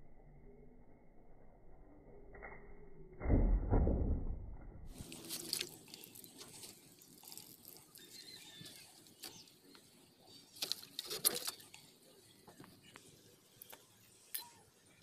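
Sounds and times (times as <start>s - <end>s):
plastic crinkling and rustling: 4.9s - 11.9s.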